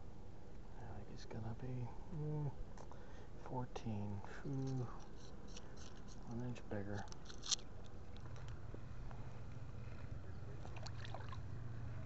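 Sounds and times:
light water splashing: 10.6 - 11.6.

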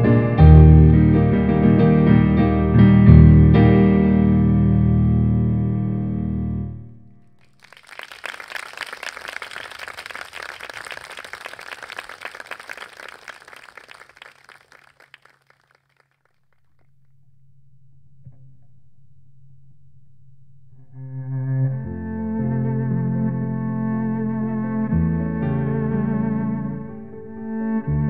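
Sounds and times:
hand-clapping applause: 7.5 - 16.5.

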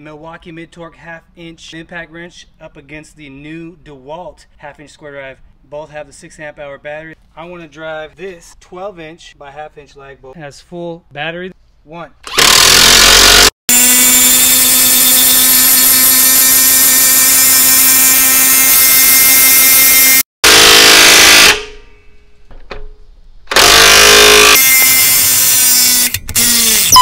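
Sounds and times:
impact wrench hammering bolt: 23.5 - 24.7.

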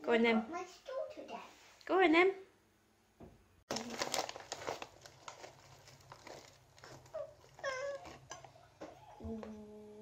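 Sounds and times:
paper bag crinkling: 3.7 - 8.2.

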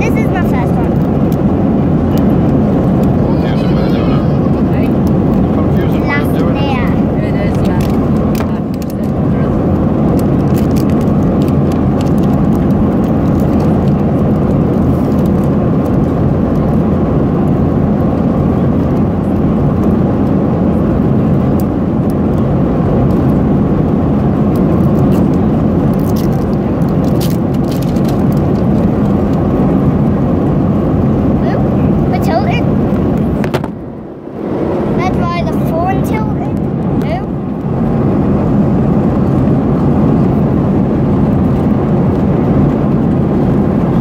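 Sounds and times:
airliner cabin roar: 0.0 - 44.0
plastic wrapping crackling: 10.1 - 15.5, 24.8 - 29.4.

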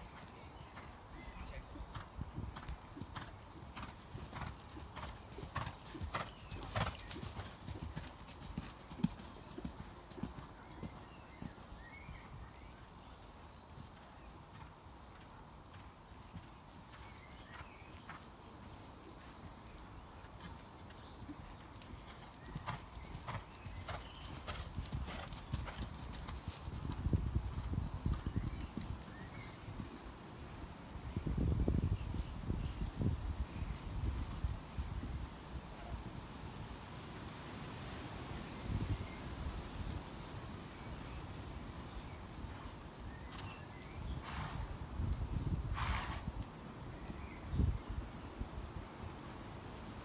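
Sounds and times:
horse hoofbeats on sand: 1.5 - 11.6.

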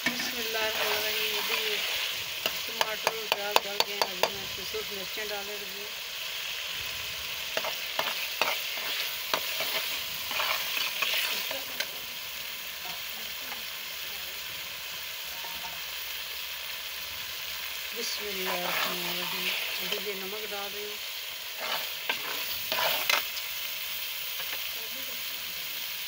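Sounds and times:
masala sizzling in a pot: 0.0 - 26.0
metal ladle scraping a pot: 7.5 - 11.6, 21.5 - 23.4.

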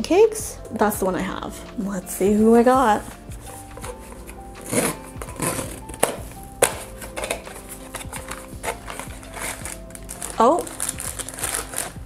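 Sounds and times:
soft background music: 0.0 - 12.0
paper rustling: 3.3 - 12.0.

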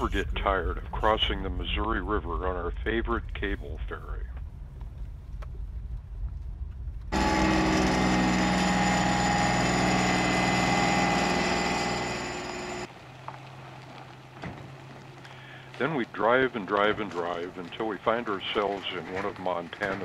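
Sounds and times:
ferry engine humming: 7.1 - 12.9.

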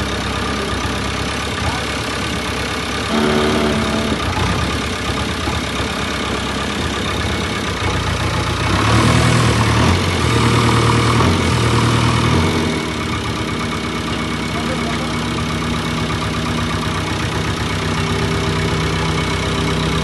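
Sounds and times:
diesel engine idling: 0.0 - 20.0
engine revving: 2.9 - 20.0
brief higher tone: 3.1 - 4.3.

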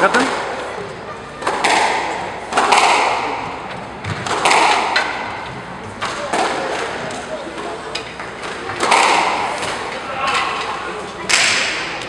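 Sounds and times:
squash ball hitting walls: 1.4 - 7.2, 8.2 - 10.0, 11.3 - 12.0.

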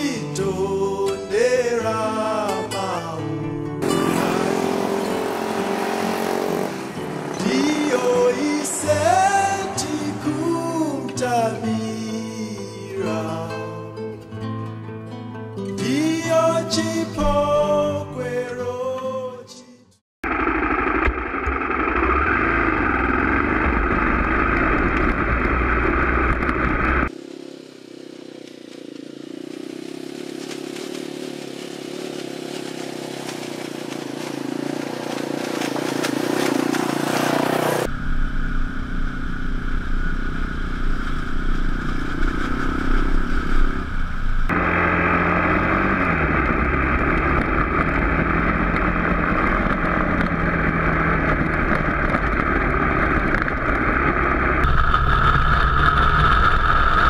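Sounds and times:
motorcycle engine running: 3.8 - 12.9, 20.2 - 57.0.

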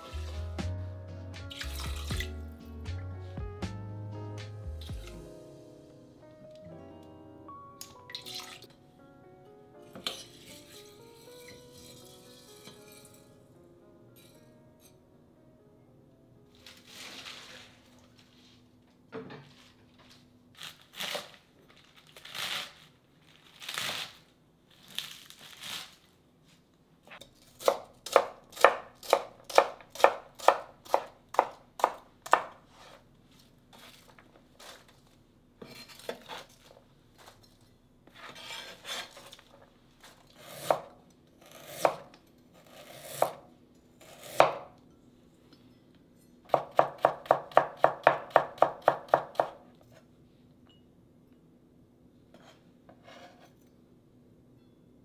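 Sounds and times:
knife chopping cabbage on board: 27.6 - 33.0, 40.4 - 40.9, 41.5 - 43.4, 44.0 - 44.7, 46.5 - 49.6.

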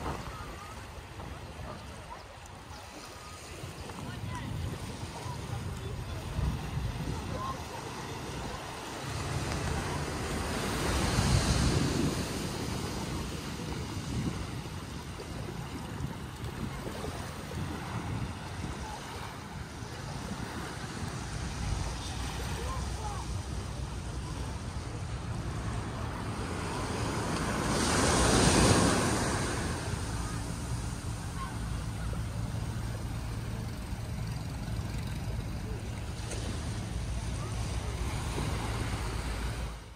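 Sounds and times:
waves washing onto shore: 0.0 - 39.9
wind on microphone: 3.5 - 8.9, 9.5 - 34.2.

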